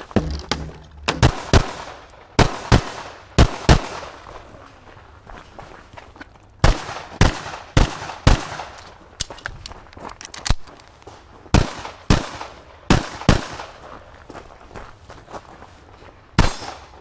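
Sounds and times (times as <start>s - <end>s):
pistol shots: 0.2s - 4.2s, 6.6s - 8.8s, 11.5s - 13.8s, 16.4s - 17.0s.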